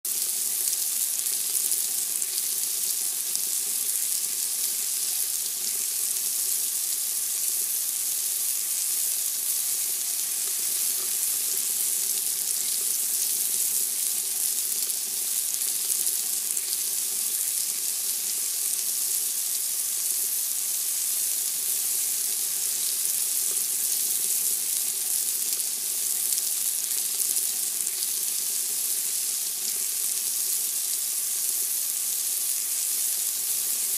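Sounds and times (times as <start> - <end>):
meat sizzling on grill: 0.0 - 33.9.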